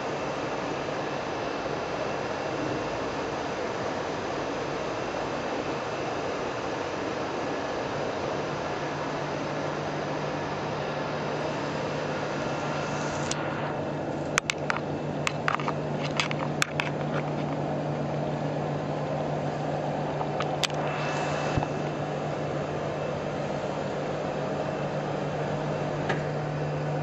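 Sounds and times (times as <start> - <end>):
machinery hum: 0.0 - 27.0
even hiss: 11.4 - 13.9
sharp clicks and knocks: 14.3 - 17.7.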